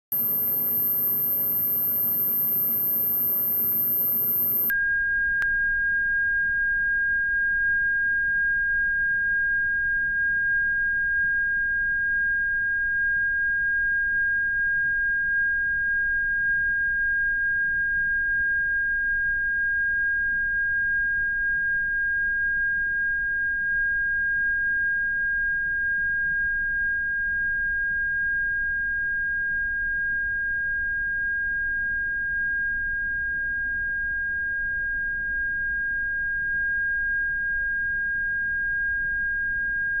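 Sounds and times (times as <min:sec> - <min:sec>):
faint low hum: 0:00.1 - 0:04.7
steady electronic tone: 0:00.1 - 0:04.7
single click: 0:00.2 - 0:04.7.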